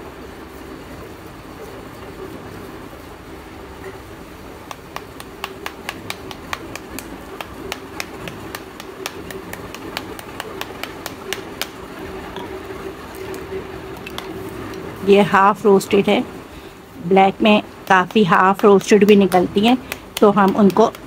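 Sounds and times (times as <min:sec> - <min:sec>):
steady low hum: 0:00.0 - 0:21.0
small metal hammer tapping clay: 0:04.7 - 0:11.8, 0:17.8 - 0:21.0.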